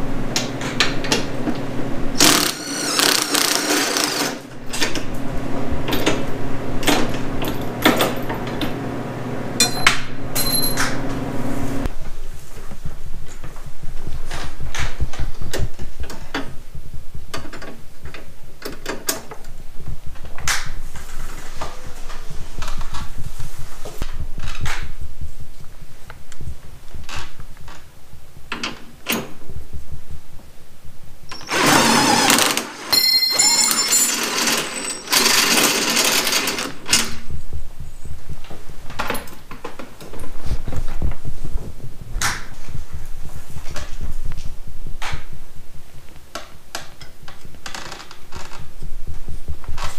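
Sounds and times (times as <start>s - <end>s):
cordless driver whirring: 2.2s - 4.5s, 31.3s - 37.1s
tools and parts clicking: 32.9s - 37.2s.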